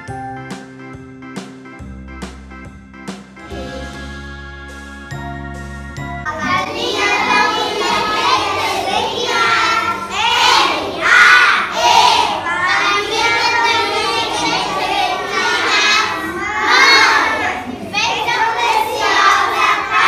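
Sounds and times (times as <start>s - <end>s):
instrumental music: 0.0s - 12.1s
children singing together: 6.3s - 20.0s.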